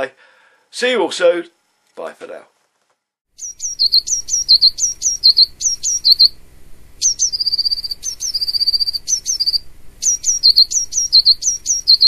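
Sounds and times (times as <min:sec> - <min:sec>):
bird trill: 0:03.4 - 0:06.4, 0:07.0 - 0:12.0
songbird singing: 0:03.4 - 0:12.0.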